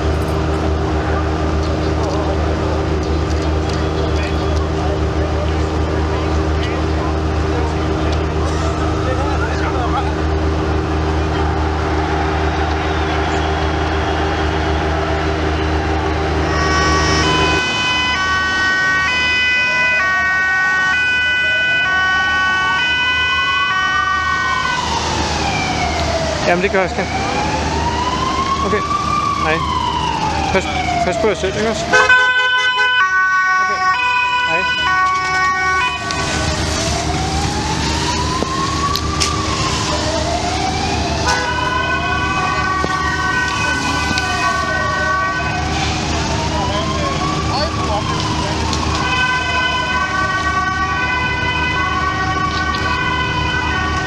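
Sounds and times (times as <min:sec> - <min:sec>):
low engine hum: 0:00.0 - 0:18.4
engine rumble: 0:00.0 - 0:19.3, 0:23.7 - 0:32.0, 0:34.5 - 0:54.0
siren wail rising and falling: 0:00.0 - 0:54.0
two-tone police siren: 0:03.2 - 0:54.0.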